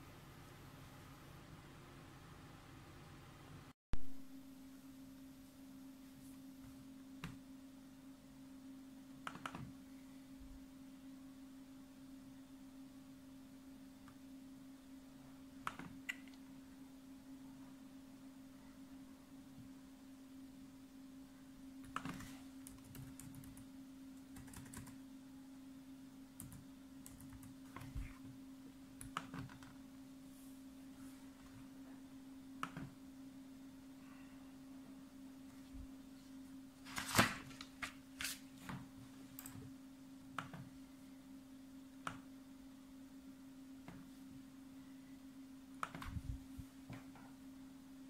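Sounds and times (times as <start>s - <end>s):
faint steady hum: 0.0s - 48.0s
laptop keystrokes: 9.2s - 9.7s, 15.6s - 16.3s, 24.3s - 25.0s.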